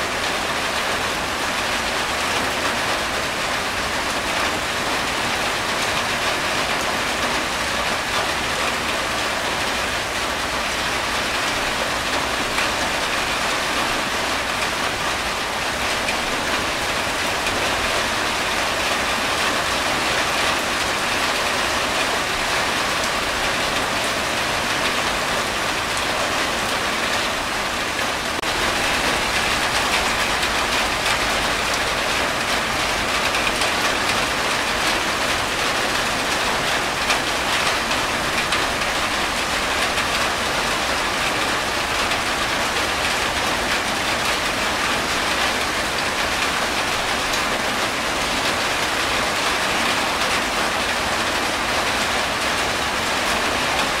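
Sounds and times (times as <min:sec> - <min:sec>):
rain on a tin roof: 0:00.0 - 0:54.0
water streaming off roof: 0:00.0 - 0:54.0.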